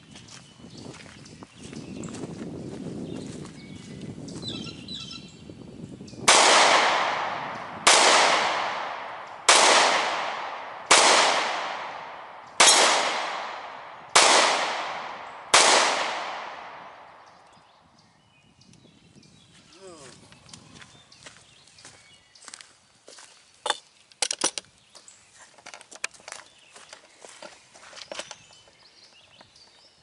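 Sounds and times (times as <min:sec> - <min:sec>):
gunshots with echo: 0:06.3 - 0:17.4.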